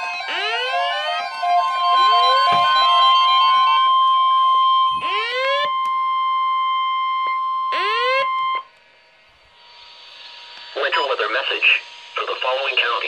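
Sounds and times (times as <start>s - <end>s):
alarm sweeping up in pitch: 0.0s - 8.7s
steady warning alarm tone: 0.0s - 13.0s.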